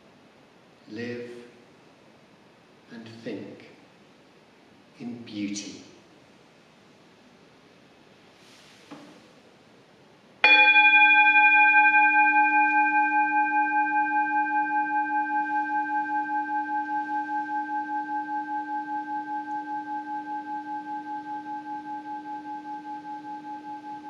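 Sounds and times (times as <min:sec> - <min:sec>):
singing bowl ringing: 0:10.4 - 0:24.0.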